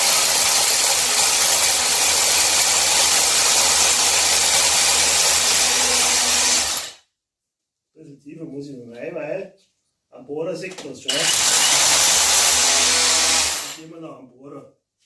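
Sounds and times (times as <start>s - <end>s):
rotary hammer drilling into concrete: 0.0s - 7.0s, 11.1s - 13.8s.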